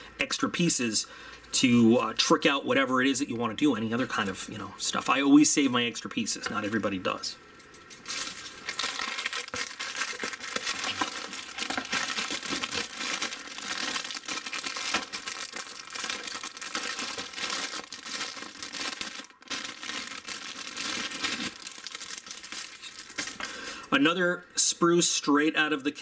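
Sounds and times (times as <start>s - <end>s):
plastic bags crinkling: 7.7s - 23.9s.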